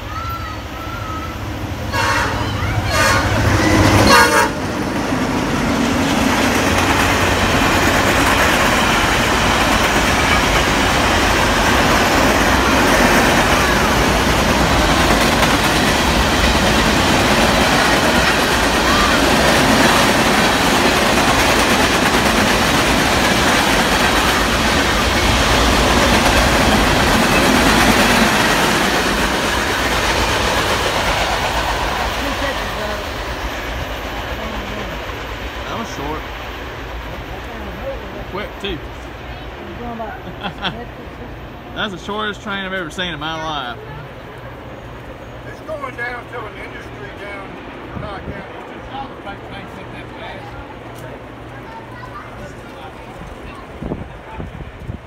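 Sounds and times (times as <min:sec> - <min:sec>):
train wheels rolling on rails: 0:00.0 - 0:55.0
train horn: 0:01.9 - 0:04.7.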